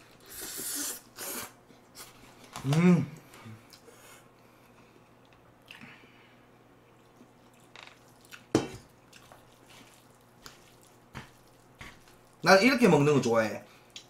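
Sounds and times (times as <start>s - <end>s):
wet stirring squish: 7.2s - 12.6s.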